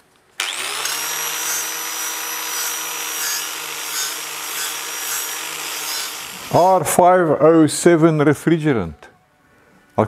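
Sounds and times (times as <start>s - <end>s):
grinder motor whine: 0.4s - 6.6s
sanding disc rasping on metal: 1.4s - 6.2s.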